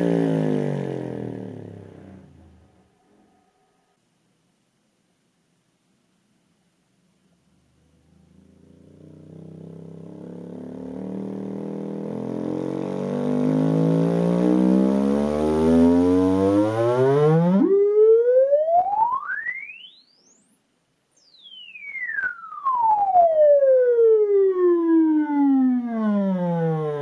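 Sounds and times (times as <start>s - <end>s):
woofer playing sine sweep: 7.8s - 27.0s.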